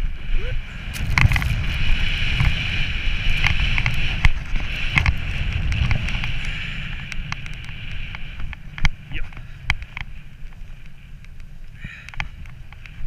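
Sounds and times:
wind rumbling on microphone: 0.0 - 13.0
skis chattering over bumps: 0.8 - 10.7.

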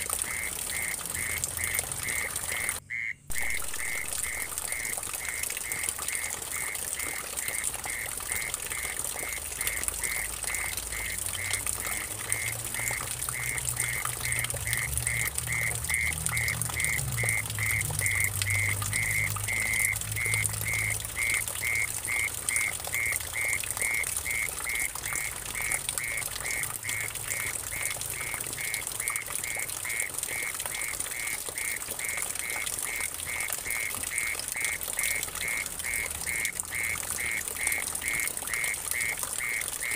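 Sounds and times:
water trickling into a puddle: 0.0 - 39.9.

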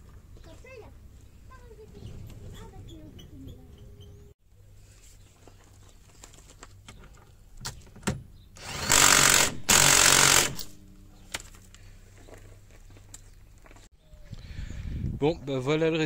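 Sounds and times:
impact wrench bursts: 8.6 - 10.8.

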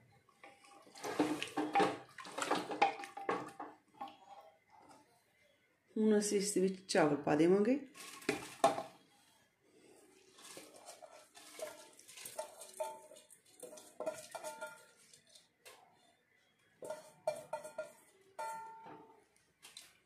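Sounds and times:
metal bowl clinking and scraping: 0.4 - 5.1, 7.9 - 9.0, 10.3 - 15.9, 16.8 - 20.0
rice pouring into a pot: 10.4 - 15.3.

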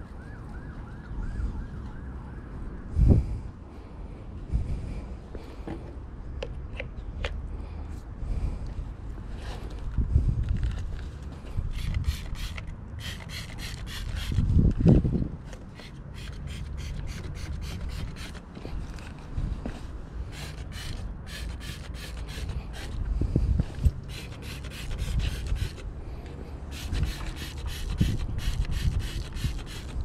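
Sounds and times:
hand brush scrubbing: 20.3 - 23.0, 24.1 - 25.8, 26.7 - 30.0.

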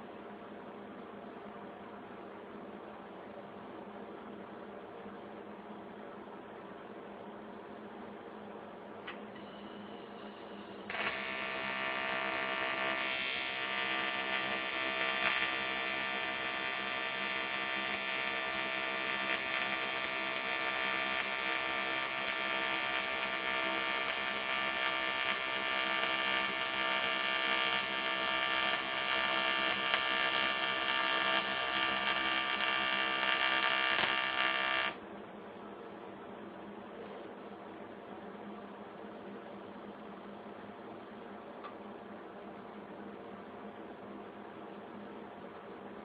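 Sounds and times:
welding arc buzzing: 9.8 - 35.0.

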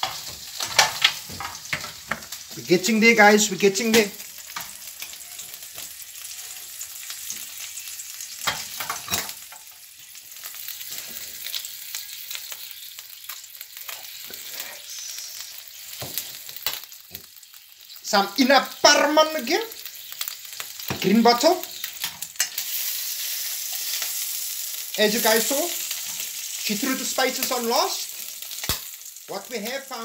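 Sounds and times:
squid sizzling in a pan: 0.0 - 30.0
oil crackling pops: 28.5 - 29.1.

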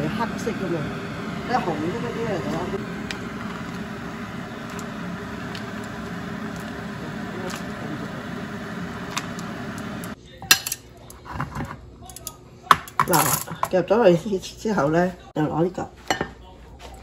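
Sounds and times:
rushing kitchen noise: 0.0 - 11.8.

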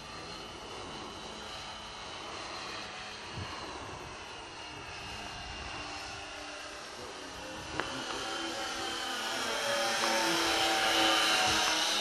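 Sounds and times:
model airplane motor whine: 0.0 - 12.0.

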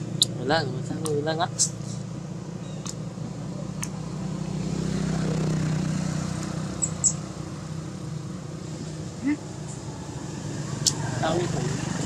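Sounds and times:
vehicle driving past: 3.4 - 12.0.

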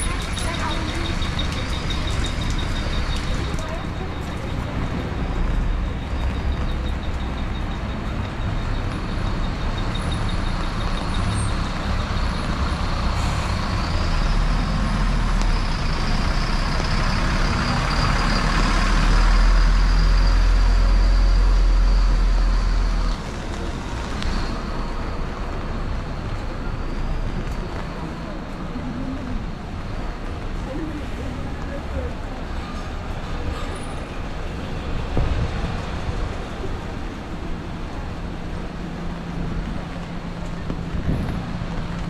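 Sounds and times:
heavy vehicle engine rumbling: 0.0 - 42.0
street noise: 0.0 - 42.0.

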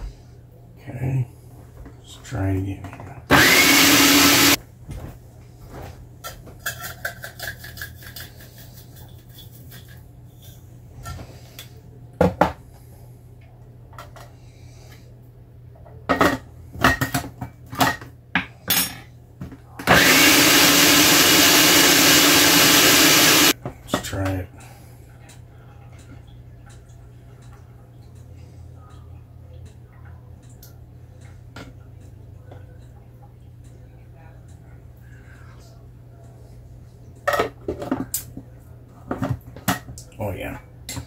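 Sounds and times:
electric blender motor running: 3.3 - 4.6, 19.9 - 23.6.

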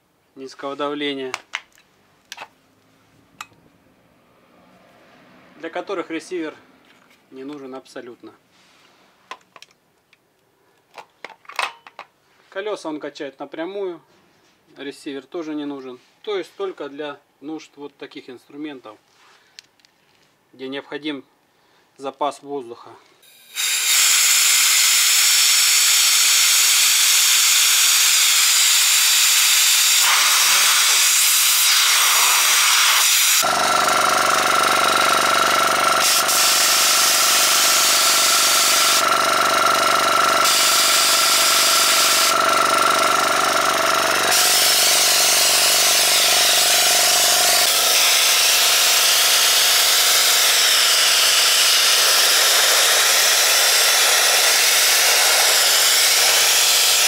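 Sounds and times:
compressed air hissing from nozzle: 23.3 - 33.4, 36.0 - 39.0
compressor motor humming: 23.3 - 57.0.

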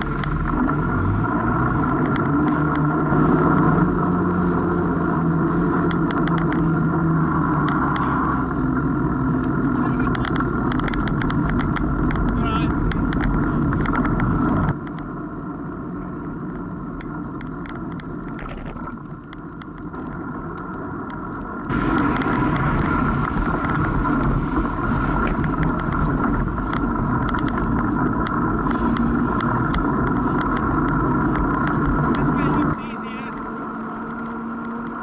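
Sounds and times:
tyres running on road: 0.0 - 35.0
wind rushing over microphone: 0.0 - 35.0
bike rattling clicks: 2.0 - 2.9, 5.8 - 6.8, 9.4 - 15.1, 16.9 - 21.3, 21.9 - 35.0.

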